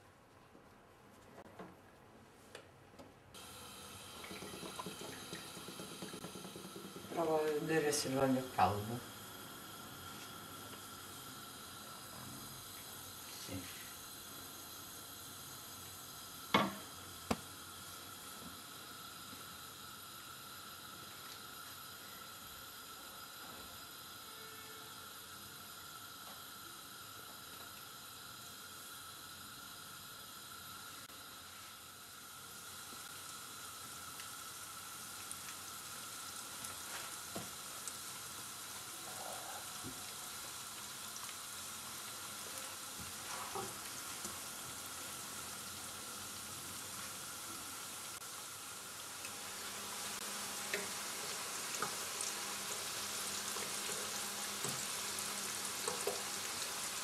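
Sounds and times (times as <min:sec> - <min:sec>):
slices sizzling in hot oil: 0:03.4 - 0:57.0.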